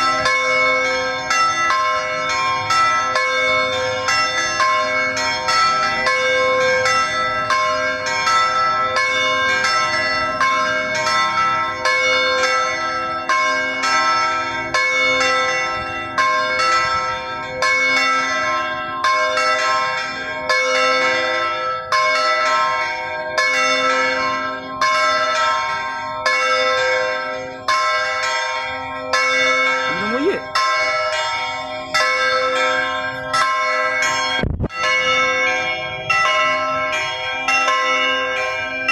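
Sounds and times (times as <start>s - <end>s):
church bells ringing: 0.0s - 38.9s.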